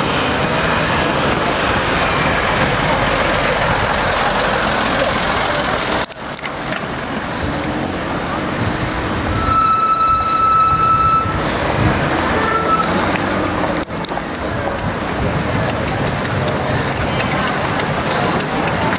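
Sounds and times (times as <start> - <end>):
passing cars and road noise: 0.0 - 18.9
steady high tone: 9.2 - 11.4.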